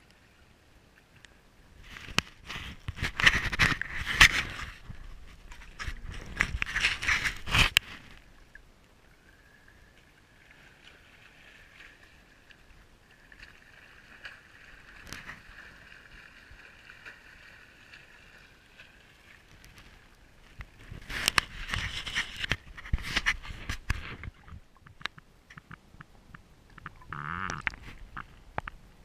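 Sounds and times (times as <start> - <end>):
water lapping against camera: 9.6 - 29.0
small clicks: 23.8 - 28.8.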